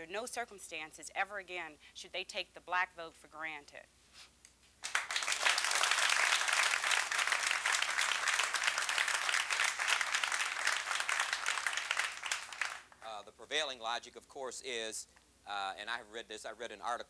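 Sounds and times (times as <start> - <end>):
audience applauding: 4.8 - 13.0.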